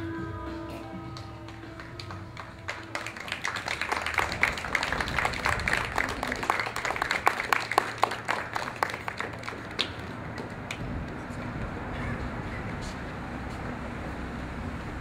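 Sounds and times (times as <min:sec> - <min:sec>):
audience applauding: 0:01.1 - 0:11.2.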